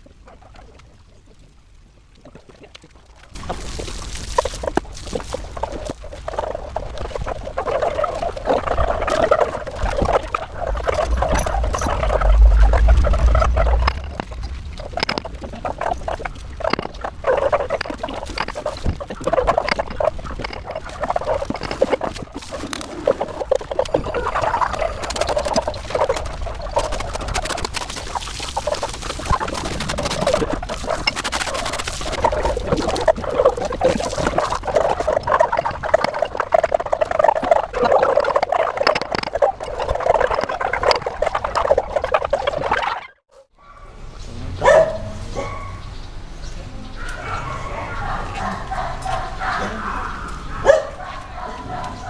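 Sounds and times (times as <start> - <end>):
hands scrubbing wet soapy fur: 3.4 - 42.8.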